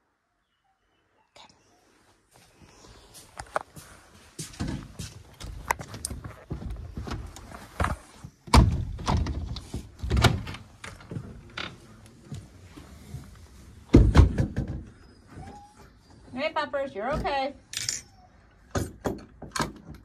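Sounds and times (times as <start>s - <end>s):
footsteps: 2.3s - 8.3s
door opening and shutting: 8.4s - 11.9s
knocks and thuds: 13.9s - 15.0s.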